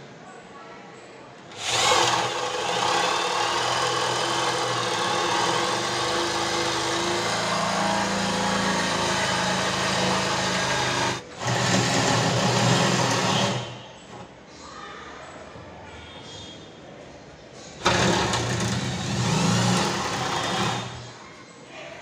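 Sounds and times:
electric drill boring into wood: 0:01.5 - 0:14.2, 0:17.8 - 0:21.1.

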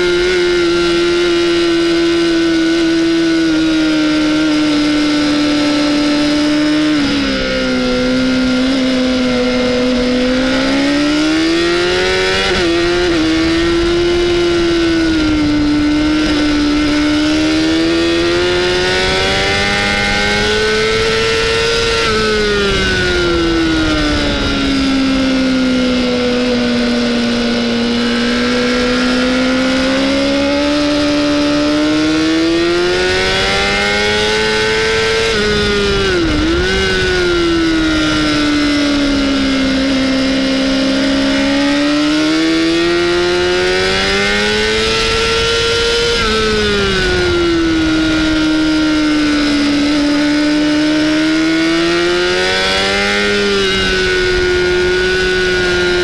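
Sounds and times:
motorcycle engine revving high: 0:00.0 - 0:56.0.

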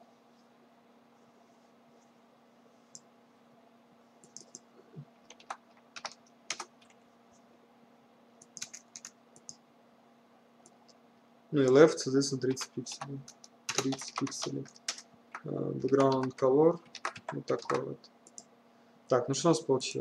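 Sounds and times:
computer keyboard typing: 0:04.2 - 0:04.6, 0:05.2 - 0:07.0, 0:08.4 - 0:09.6, 0:12.5 - 0:18.5.

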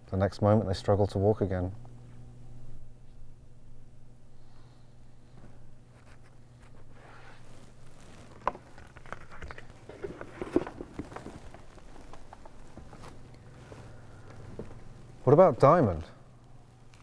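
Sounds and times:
low steady hum: 0:00.0 - 0:17.0
footsteps: 0:07.5 - 0:15.2.

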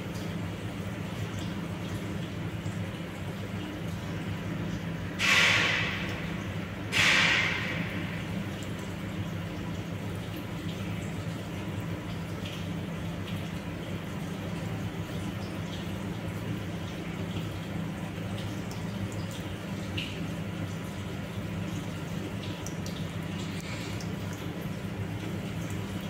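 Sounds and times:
steady low hum: 0:00.0 - 0:26.0
water gushing: 0:00.0 - 0:26.0.

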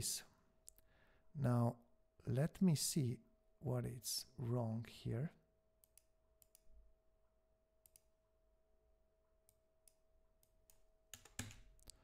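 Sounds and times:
computer mouse and keyboard clicks: 0:09.9 - 0:12.0.

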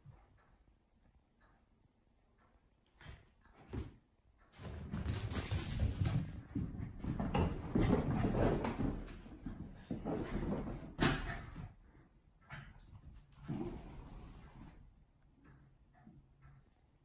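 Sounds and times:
animals scuffling on wooden floor: 0:04.6 - 0:10.8.

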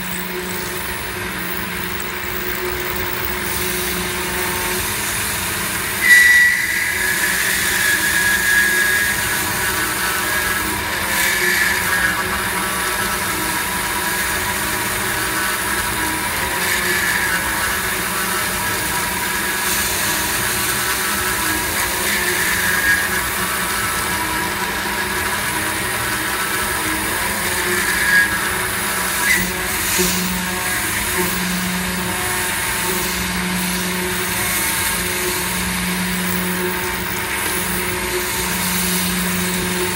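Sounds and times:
milling machine cutting metal: 0:00.0 - 0:39.9.

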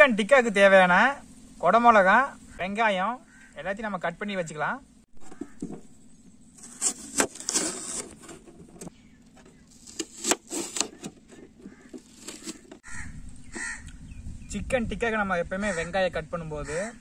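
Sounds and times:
knife cutting onion: 0:09.7 - 0:12.8.

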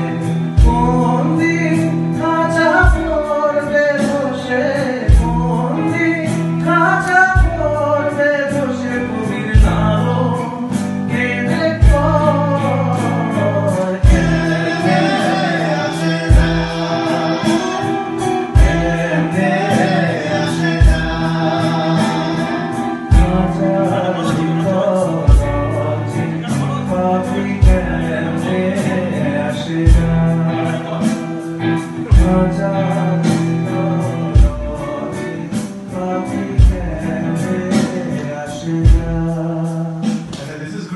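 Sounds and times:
drums: 0:00.0 - 0:40.9
electric guitars: 0:00.0 - 0:40.9
man singing: 0:00.0 - 0:40.9
low drum hits: 0:23.1 - 0:24.5.

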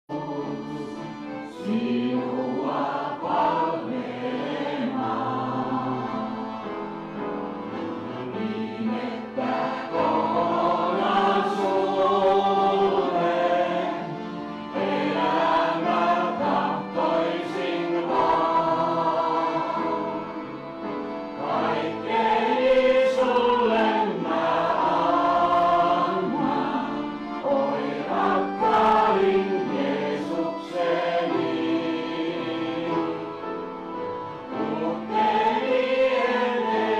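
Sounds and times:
person singing: 0:00.1 - 0:06.4
piano accordion: 0:00.1 - 0:36.9
upright piano: 0:00.1 - 0:36.9.

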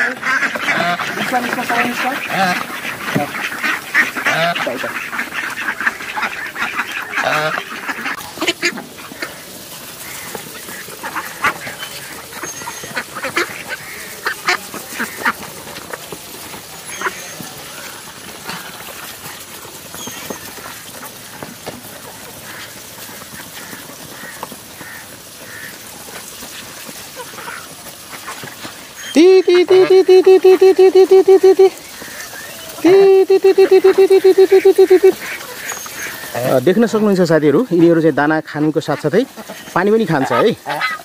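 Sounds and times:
bills pecking in feed bowls: 0:00.0 - 0:41.0
ducks quacking: 0:00.0 - 0:41.0
goose honking: 0:00.0 - 0:41.0.

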